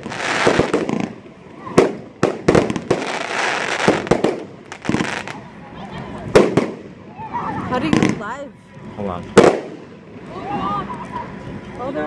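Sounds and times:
fireworks bangs: 0.0 - 5.4, 6.2 - 8.4, 9.4 - 10.2
fireworks hissing crackle: 0.0 - 8.4.

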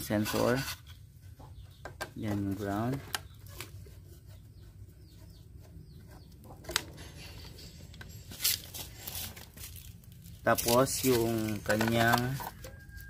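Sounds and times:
faint bird chirping: 0.0 - 9.4.

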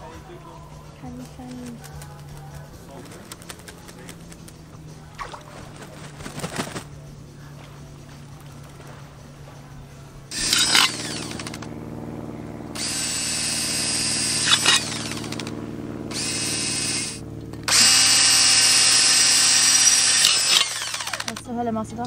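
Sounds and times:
cordless drill motor: 10.3 - 11.7, 12.7 - 21.5
drill bit cutting metal: 10.3 - 11.7, 12.8 - 15.5, 16.1 - 21.4.

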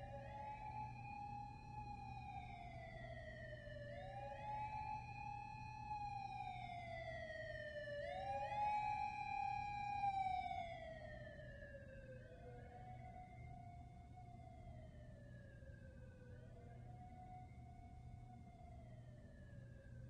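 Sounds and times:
police siren wailing: 0.0 - 20.0.

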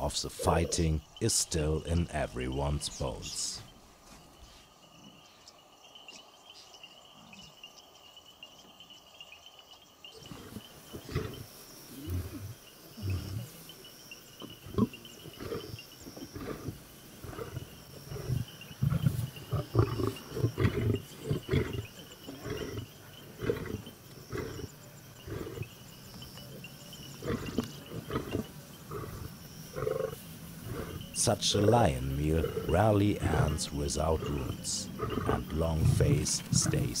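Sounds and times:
lions growling and snarling: 10.1 - 37.0.

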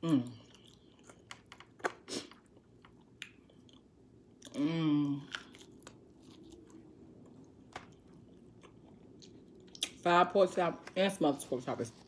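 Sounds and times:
person chewing with wet smacks: 0.1 - 4.6, 5.2 - 10.0.

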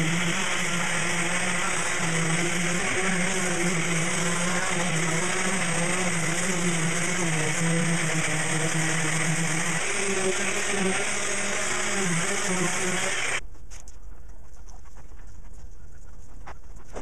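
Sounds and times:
power sander running: 0.0 - 13.4
vacuum hose rushing: 0.0 - 13.4.

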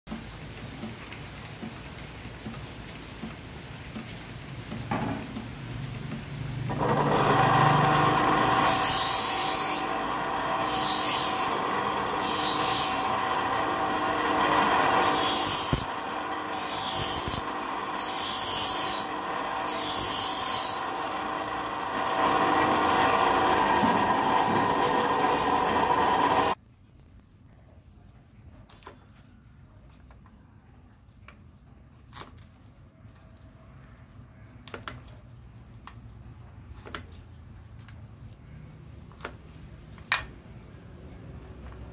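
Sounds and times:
bench grinder motor hum: 6.7 - 26.6
steel blade grinding on wheel: 6.7 - 26.6.

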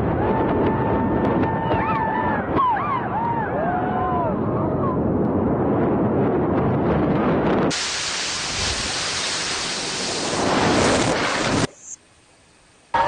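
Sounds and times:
low rumbling: 0.0 - 11.7
reversed blast rushing hiss: 7.7 - 13.0.

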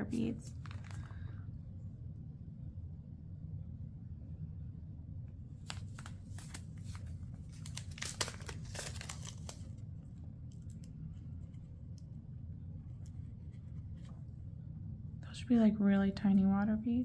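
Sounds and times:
low hum: 0.0 - 17.0
plastic items crinkling and rustling: 5.6 - 9.8.

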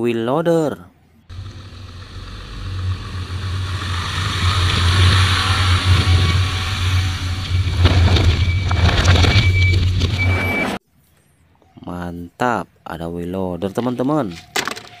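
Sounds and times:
heavy diesel engine running hard: 1.3 - 10.1.

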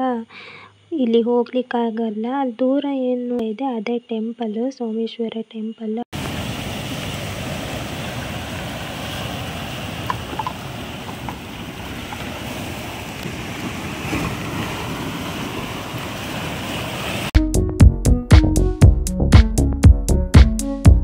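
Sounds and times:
sea surf washing ashore: 6.2 - 17.4.

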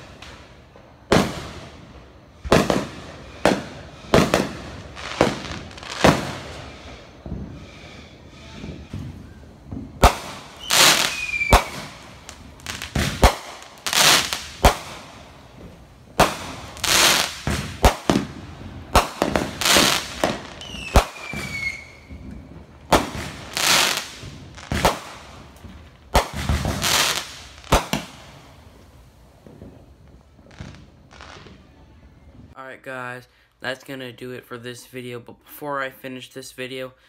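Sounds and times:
fireworks hissing bursts: 0.0 - 31.7
fireworks bangs: 0.0 - 32.6
descending firework whistle: 5.5 - 14.8, 16.3 - 27.2, 29.5 - 32.6.

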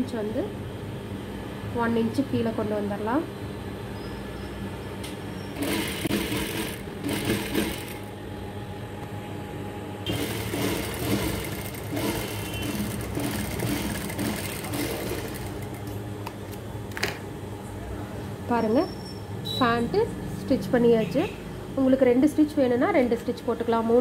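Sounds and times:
sewing machine stitching: 5.6 - 8.1, 10.1 - 15.9.

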